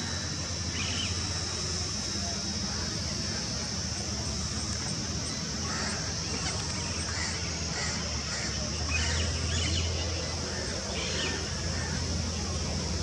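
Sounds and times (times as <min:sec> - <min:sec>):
toy helicopter rotors buzzing: 0:00.0 - 0:13.0.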